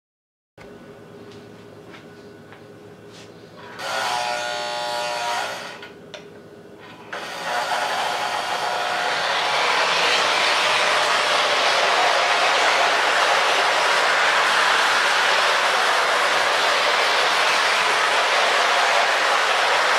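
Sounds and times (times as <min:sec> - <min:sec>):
loud buzz: 0:03.7 - 0:05.9, 0:07.1 - 0:19.9
model train running on track: 0:07.4 - 0:19.9.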